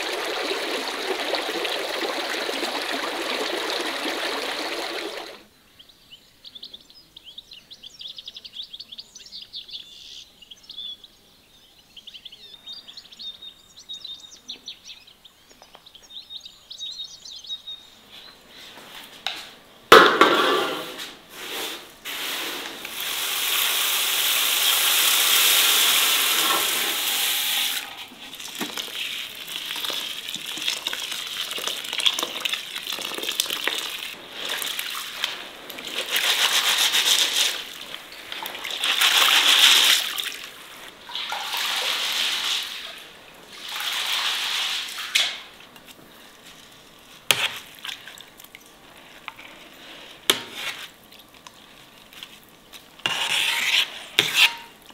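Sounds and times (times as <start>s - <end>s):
water pouring into basin: 0.0s - 5.4s, 22.9s - 45.1s
grain swishing in water: 21.3s - 23.9s, 26.4s - 45.2s.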